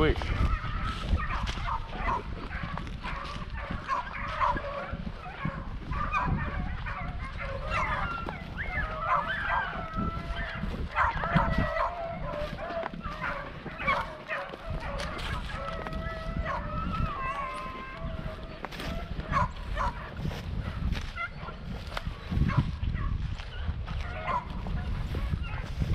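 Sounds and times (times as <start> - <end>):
dogs baying and yipping: 0.0 - 25.9.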